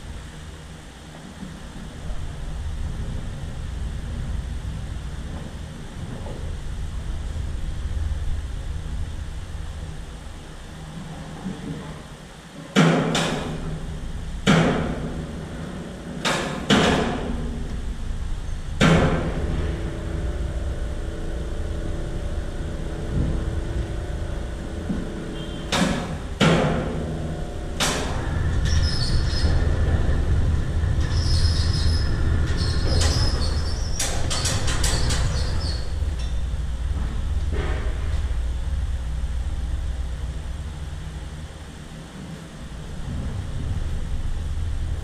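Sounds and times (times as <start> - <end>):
low machine hum: 0.0 - 45.0.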